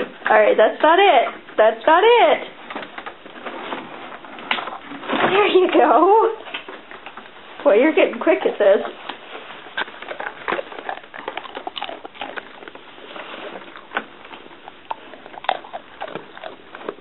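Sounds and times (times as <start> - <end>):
dog sniffing carpet: 8.9 - 17.0.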